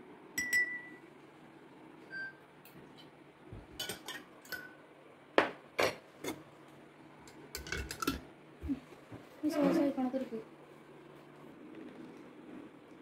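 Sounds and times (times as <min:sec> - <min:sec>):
dishes and utensils clinking: 0:03.8 - 0:04.8, 0:07.6 - 0:08.2.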